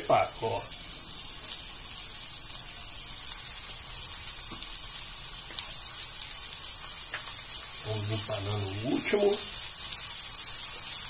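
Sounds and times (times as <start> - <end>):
meat sizzling in a pan: 0.0 - 11.0
small crackles: 3.2 - 7.8.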